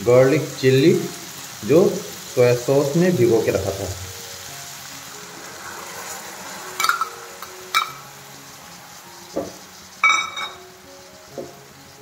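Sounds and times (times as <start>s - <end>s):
vegetables sizzling in a wok: 0.0s - 12.0s
metal clinking on wok: 6.8s - 8.0s, 10.0s - 10.6s
soft knock: 9.4s - 9.6s.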